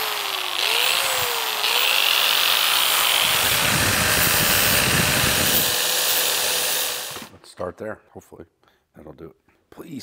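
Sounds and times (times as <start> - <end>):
rotary tool grinding metal: 0.0 - 7.4.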